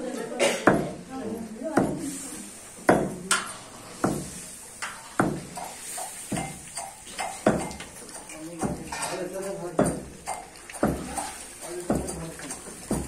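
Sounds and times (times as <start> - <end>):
metal pestle striking metal pot: 2.9 - 13.0.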